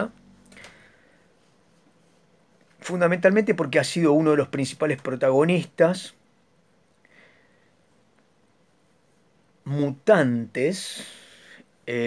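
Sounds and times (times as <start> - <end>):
man speaking: 0.0 - 0.2, 2.8 - 6.2, 9.6 - 12.0.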